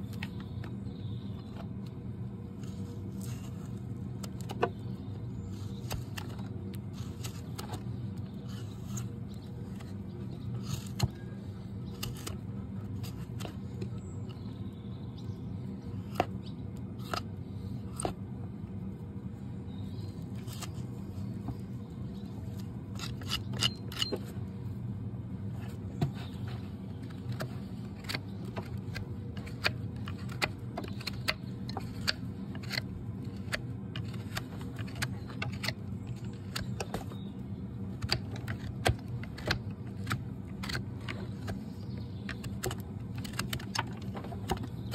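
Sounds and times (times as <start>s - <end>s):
knife clicking and scraping hoof: 0.0s - 14.5s, 15.8s - 18.3s, 20.2s - 24.5s, 25.7s - 44.9s
steady low hum: 0.0s - 44.9s.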